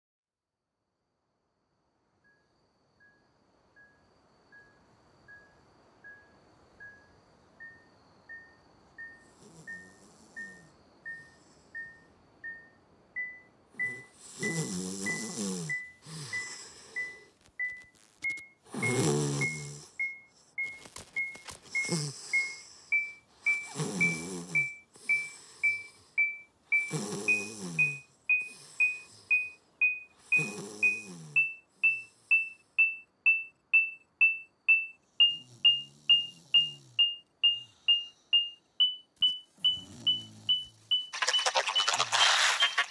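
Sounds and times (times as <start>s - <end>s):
electronic detector beeping: 7.6s - 42.9s
man snoring: 9.4s - 10.7s, 13.8s - 17.3s, 18.7s - 20.0s, 21.8s - 22.8s, 23.5s - 26.1s, 26.8s - 29.3s, 30.2s - 31.4s, 39.7s - 40.7s.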